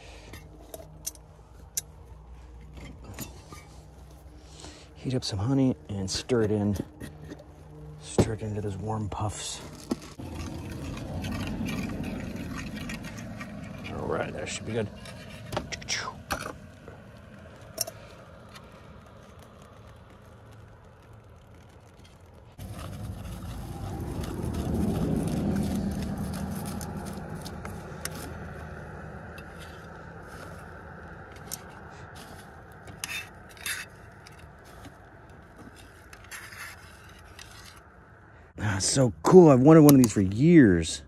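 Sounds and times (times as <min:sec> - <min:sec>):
spoon scraping metal pot: 0:10.0 - 0:16.0
low rumble: 0:18.5 - 0:33.0.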